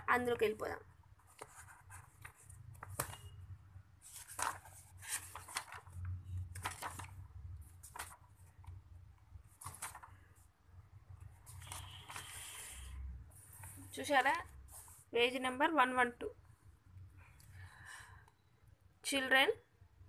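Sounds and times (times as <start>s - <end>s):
book pages being turned: 1.2s - 3.3s, 4.0s - 8.8s, 9.4s - 10.4s, 11.2s - 15.1s.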